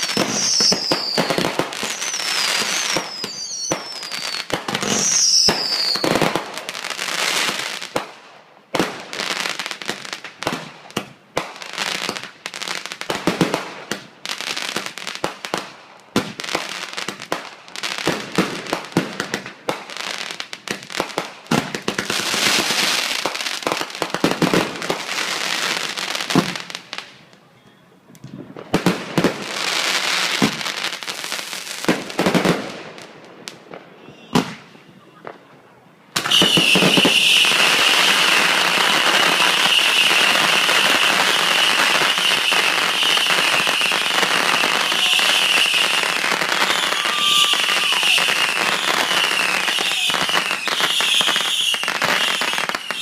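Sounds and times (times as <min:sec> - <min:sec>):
fireworks crackling: 0:00.0 - 0:53.0
fireworks shells bursting: 0:36.2 - 0:53.0.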